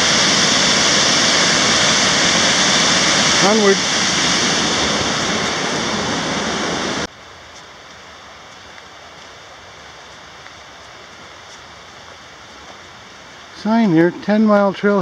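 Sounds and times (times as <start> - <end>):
waterfall rushing: 0.0 - 7.1.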